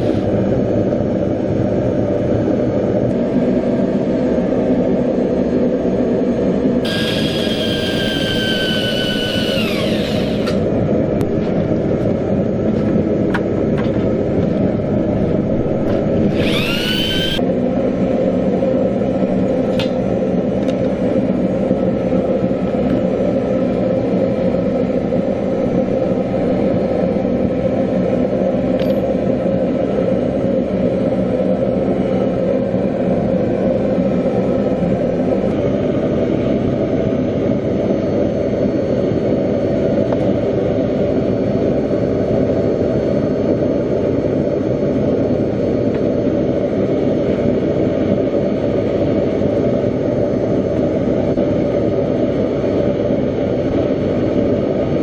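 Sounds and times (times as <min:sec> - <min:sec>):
electric drill whine: 0:00.0 - 0:00.3, 0:06.8 - 0:10.7, 0:15.9 - 0:17.5, 0:28.8 - 0:29.1
loud steady rumble: 0:00.0 - 0:55.0.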